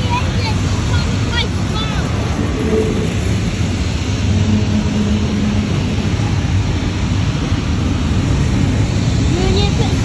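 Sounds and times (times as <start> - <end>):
freight train wheels rumbling: 0.0 - 10.0
low steady hum: 0.6 - 8.2.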